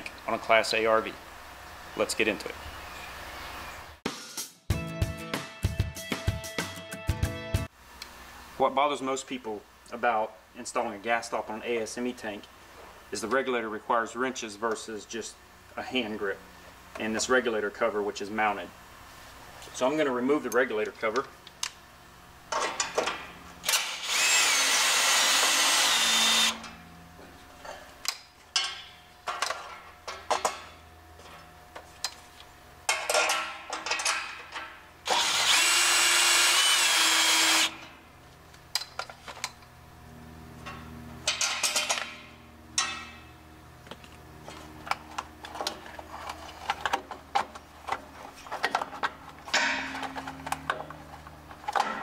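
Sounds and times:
cordless drill whining: 23.7 - 26.6, 35.1 - 37.8
metal cover and bolts clicking: 32.9 - 34.8, 40.6 - 43.2, 44.9 - 52.0.

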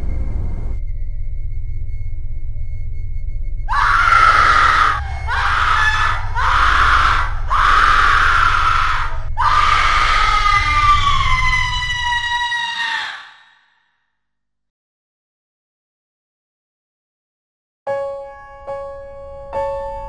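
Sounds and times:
low steady drone: 0.0 - 12.0
person screaming in pain: 3.7 - 13.3.

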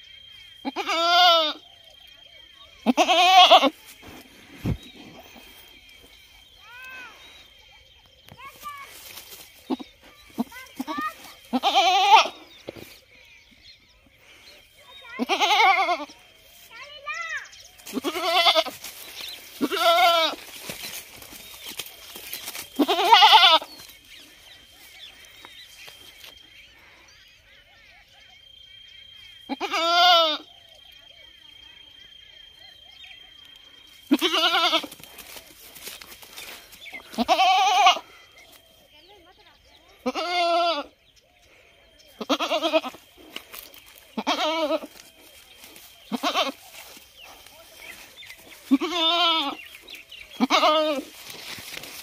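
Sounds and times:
goat bleating: 0.6 - 1.6, 2.8 - 3.7, 9.7 - 12.4, 15.2 - 16.2, 17.9 - 18.8, 19.6 - 20.5, 22.8 - 23.8, 29.5 - 30.5, 34.1 - 35.0, 37.0 - 38.1, 40.0 - 40.9, 42.2 - 43.1, 44.2 - 45.1, 46.1 - 46.7, 47.9 - 49.7, 50.3 - 51.3.

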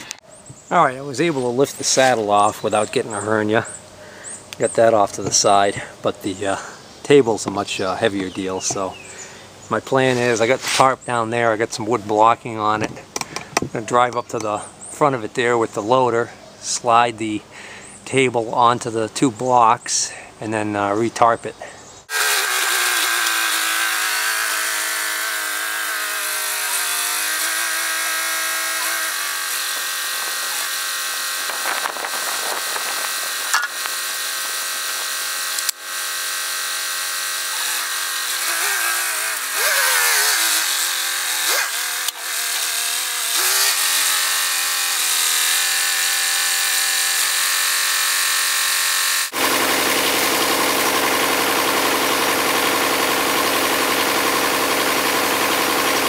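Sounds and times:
tractor engine revving: 22.1 - 56.0.

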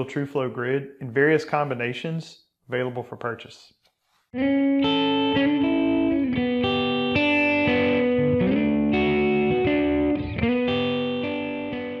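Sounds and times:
guitar chords: 4.4 - 12.0.

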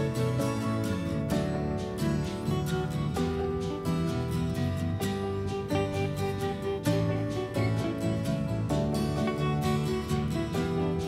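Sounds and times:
instrumental music plucked strings: 0.0 - 11.0.

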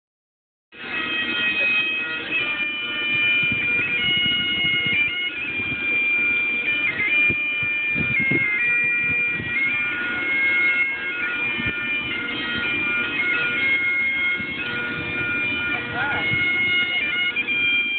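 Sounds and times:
bagpipes playing a tune: 0.8 - 17.9.

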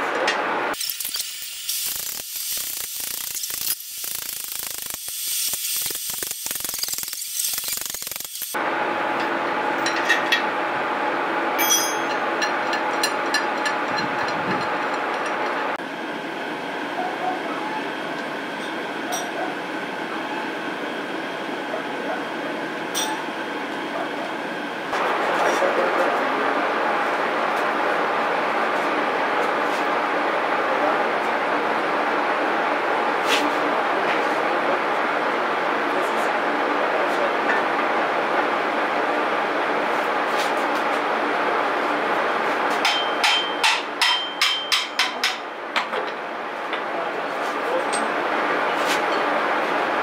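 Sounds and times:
ratchet handle clicking: 1.1 - 8.6
steady rumbling: 8.6 - 15.8
metal scraper clinks: 11.6 - 13.8.

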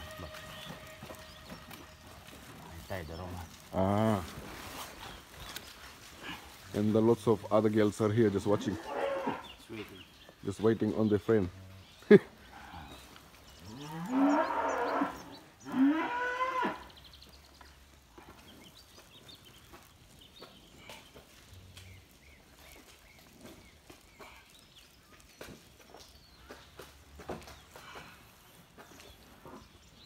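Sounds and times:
cows mooing: 8.6 - 9.5, 13.6 - 16.9.

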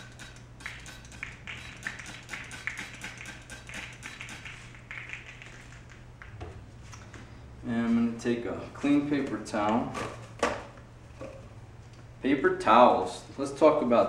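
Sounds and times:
spray bottle hissing sprays: 0.0 - 6.0.

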